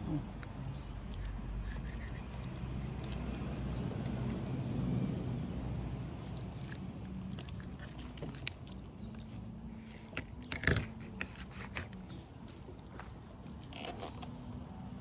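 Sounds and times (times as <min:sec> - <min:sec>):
knife cutting fish: 0:10.1 - 0:12.1.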